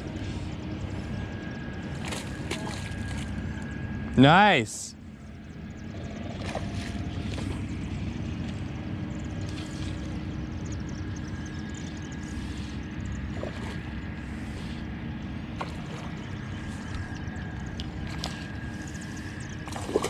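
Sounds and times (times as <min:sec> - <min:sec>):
birds chirping: 0:00.0 - 0:20.0
faint constant hum: 0:00.0 - 0:20.0
low rumble: 0:05.0 - 0:20.0
fish splashing: 0:15.6 - 0:20.0.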